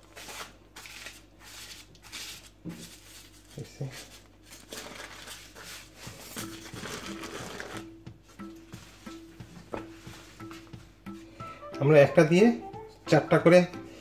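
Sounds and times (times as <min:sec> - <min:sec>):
parchment paper rustling: 0:00.0 - 0:07.8.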